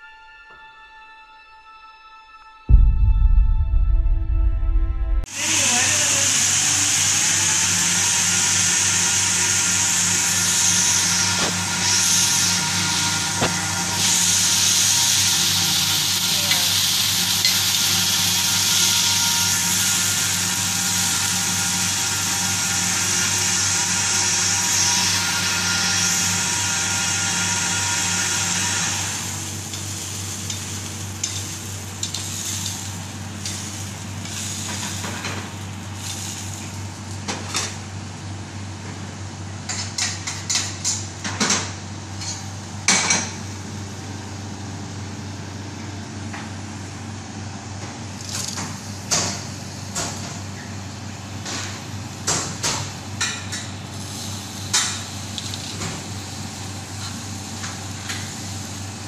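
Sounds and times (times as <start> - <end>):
steady low hum: 2.7 - 5.7.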